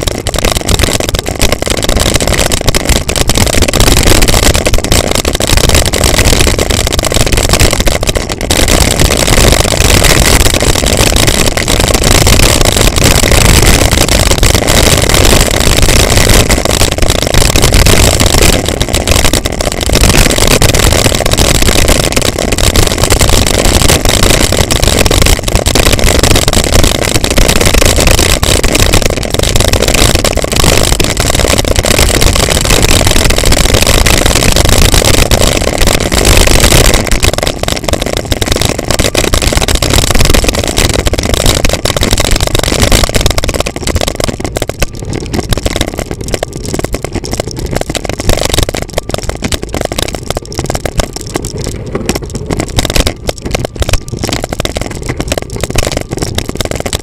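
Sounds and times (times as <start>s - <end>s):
wind rumble on microphone: 0.0s - 3.4s, 4.2s - 36.2s.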